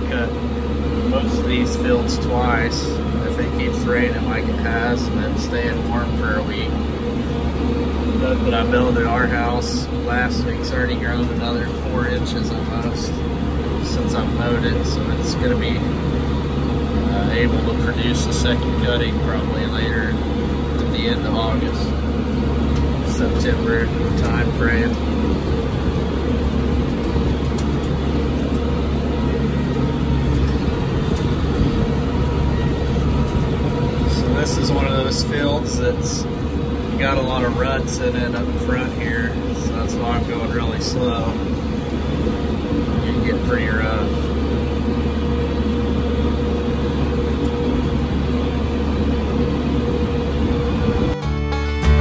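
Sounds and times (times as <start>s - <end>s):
thin steady whine: 0.0s - 52.0s
tractor diesel engine running: 0.0s - 52.0s.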